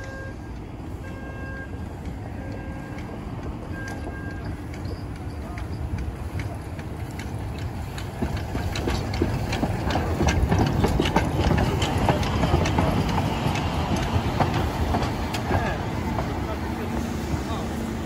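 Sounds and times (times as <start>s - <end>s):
train rumbling past: 0.0s - 18.0s.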